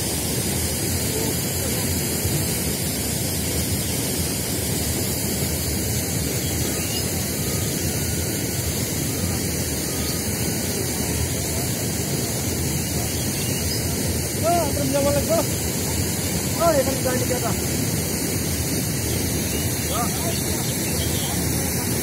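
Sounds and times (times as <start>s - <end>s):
fast-flowing river rushing: 8.7s - 22.0s.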